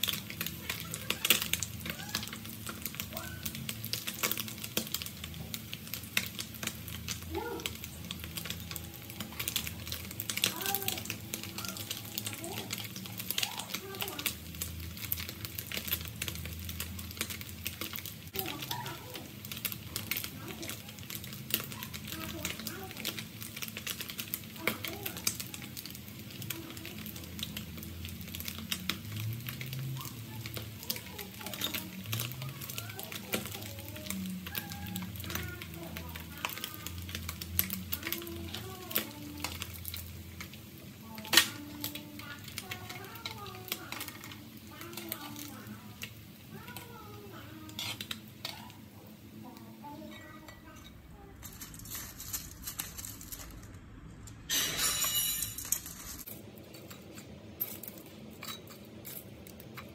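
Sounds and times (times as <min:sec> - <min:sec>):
fish frying in oil: 0:00.0 - 0:59.9.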